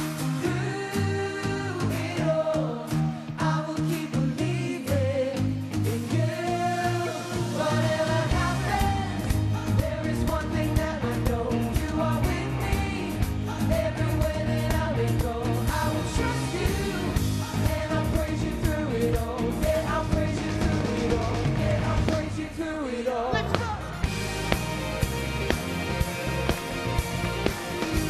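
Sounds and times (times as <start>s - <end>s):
live band playing pop-rock: 0.0s - 22.6s, 23.4s - 28.0s
sung vocals: 0.0s - 28.0s
steady drum beat: 7.4s - 22.5s, 23.5s - 28.0s.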